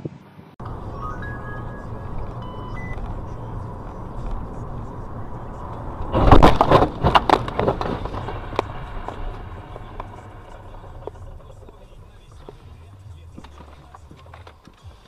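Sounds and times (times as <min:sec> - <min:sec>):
car road and cabin noise: 0:00.0 - 0:15.0
side-swipe collision crunching: 0:03.0 - 0:14.2.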